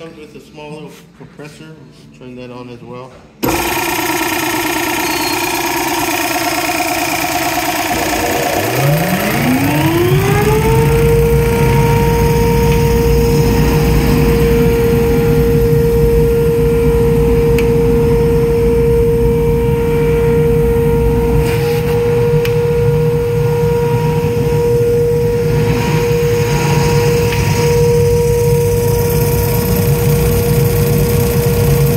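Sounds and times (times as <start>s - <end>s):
dust collector whining: 3.4s - 31.9s
low machine rumble: 3.4s - 31.9s.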